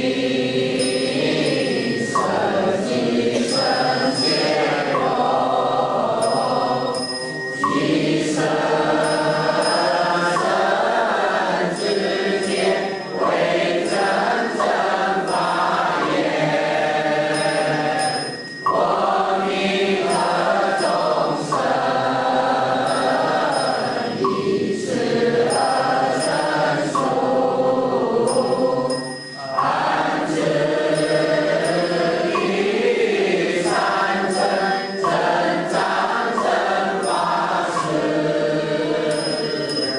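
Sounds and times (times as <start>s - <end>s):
group of voices chanting: 0.0s - 39.9s.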